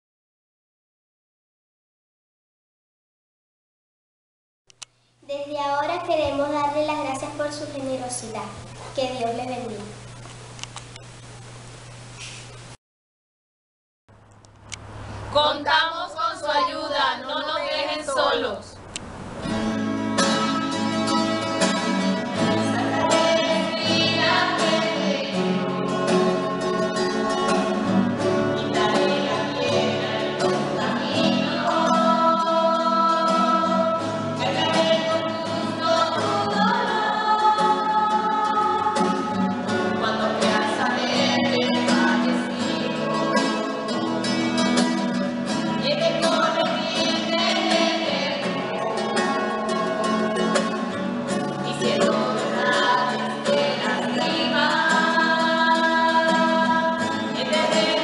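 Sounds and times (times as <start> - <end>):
women and children singing: 15.3 - 18.8, 22.2 - 25.8, 27.6 - 44.3, 45.8 - 58.0
strummed acoustic guitar: 19.1 - 58.0.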